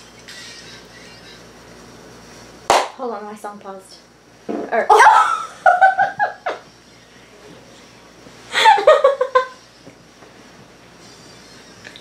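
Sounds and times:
girl laughing: 4.9 - 6.7, 8.5 - 9.6.

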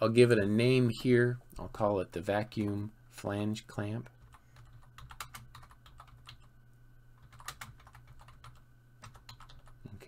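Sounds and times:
faint low hum: 0.0 - 10.0
keyboard typing: 4.2 - 6.5, 7.2 - 9.8.

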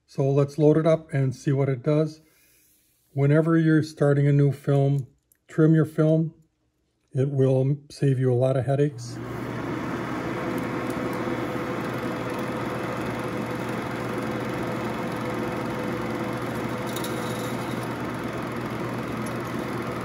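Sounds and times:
film projector humming: 8.9 - 20.0.

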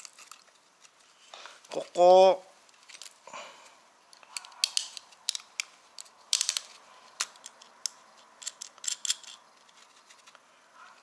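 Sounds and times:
plastic connectors clicking: 4.1 - 10.4.

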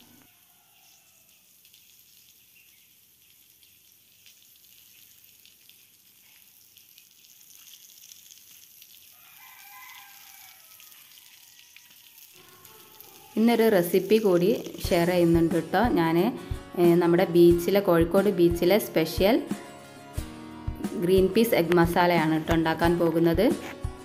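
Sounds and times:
rooster crowing faintly: 0.0 - 1.4, 9.1 - 13.4
garden hose spraying on stone: 0.0 - 19.9, 20.7 - 24.0.

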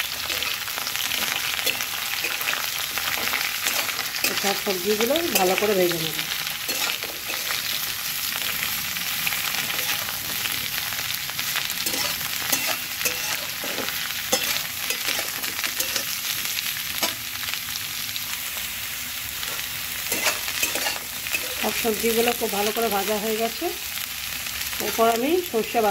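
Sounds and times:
vegetables sizzling in oil: 0.0 - 25.9
spatula scraping pan: 6.7 - 7.8, 9.6 - 10.2, 11.8 - 16.2, 19.5 - 21.8.

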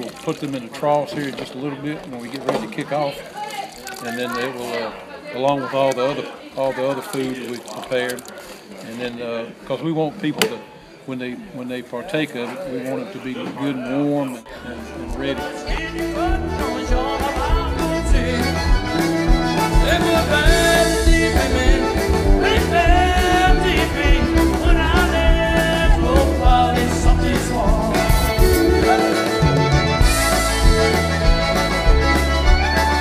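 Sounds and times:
background music with steady beat: 14.9 - 33.0.

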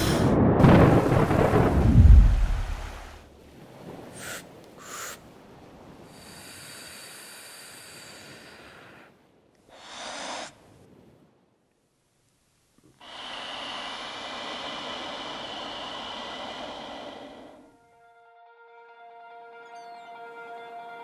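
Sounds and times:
deep rumbling whoosh of water: 0.0 - 6.8
person breathing slowly: 6.0 - 10.9, 12.9 - 17.8.

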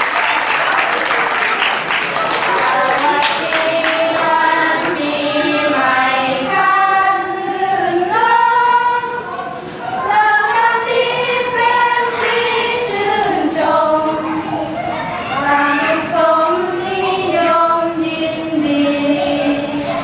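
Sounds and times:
women singing unaccompanied: 2.6 - 14.4, 15.3 - 20.0.

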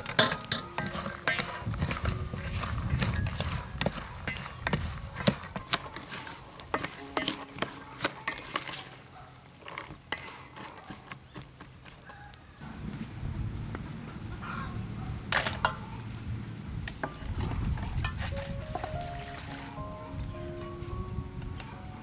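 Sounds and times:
wooden spoon knocking metal bowl: 0.0 - 8.8.

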